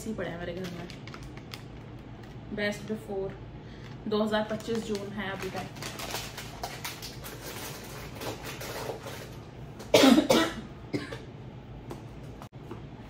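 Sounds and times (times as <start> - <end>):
kitchen items clicking and rustling: 0.0 - 2.4, 3.8 - 9.9
woman coughing: 9.9 - 11.3.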